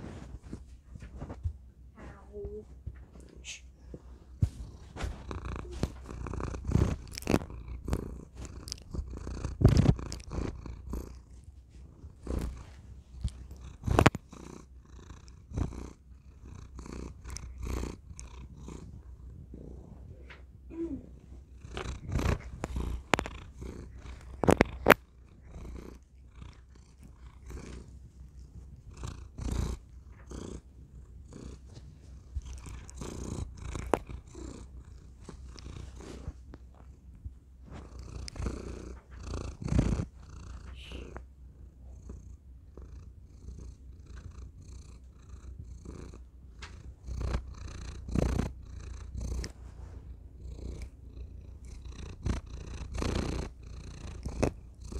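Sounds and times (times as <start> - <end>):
microphone bumping against fur: 0.0 - 3.2, 4.3 - 6.2
cat purring: 0.0 - 54.9.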